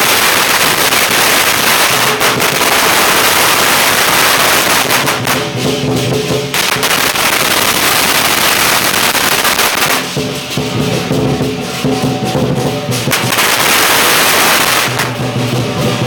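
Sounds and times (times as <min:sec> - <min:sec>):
cymbals crashing: 0:00.0 - 0:16.0
drum beating: 0:00.0 - 0:16.0
firecrackers crackling: 0:00.0 - 0:16.0
gong: 0:10.1 - 0:13.4.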